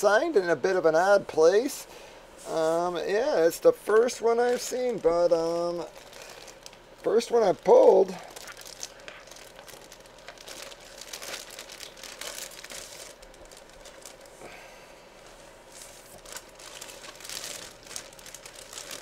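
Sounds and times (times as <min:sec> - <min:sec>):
plastic packaging crinkling: 0:02.5 - 0:14.5, 0:15.2 - 0:19.0.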